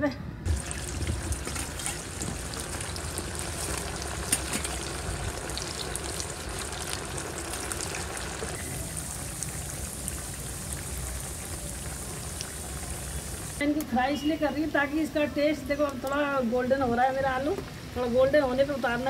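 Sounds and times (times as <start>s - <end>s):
oil crackles and pops: 0.5s - 13.6s
potatoes sizzling in hot oil: 0.5s - 13.6s, 15.9s - 19.0s.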